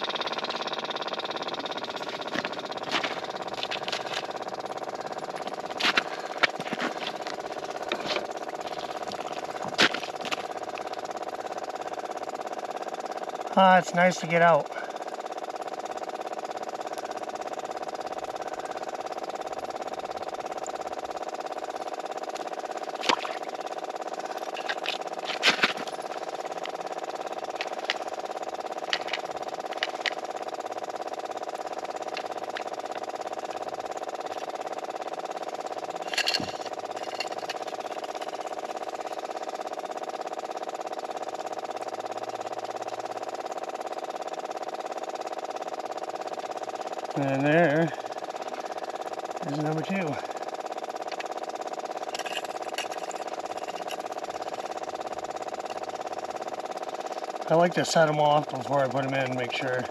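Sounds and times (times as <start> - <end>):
steady motor hum: 0.0 - 59.9
sharp clicks and knocks: 36.0 - 38.6, 52.1 - 54.6.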